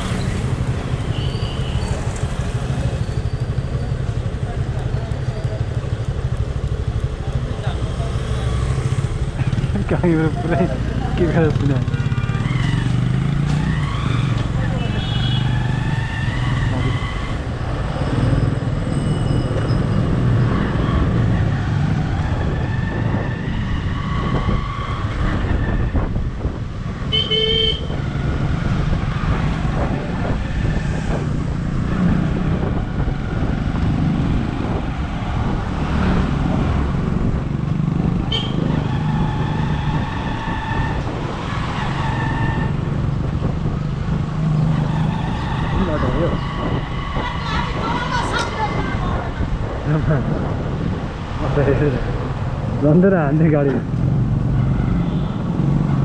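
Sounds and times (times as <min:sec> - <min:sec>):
motorcycle engine and wind rumble: 0:00.0 - 0:56.0
vehicle horns tooting: 0:27.0 - 0:28.0, 0:38.3 - 0:38.7.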